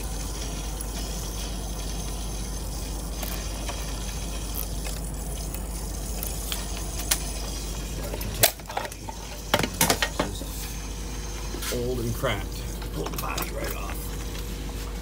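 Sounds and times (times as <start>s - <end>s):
low equipment hum: 0.0s - 15.0s.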